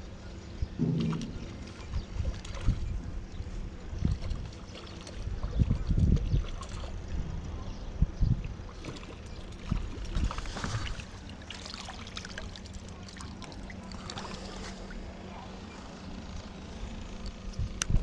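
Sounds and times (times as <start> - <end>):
low thumps: 0.8 - 3.5
waves lapping against rocks: 8.7 - 15.0.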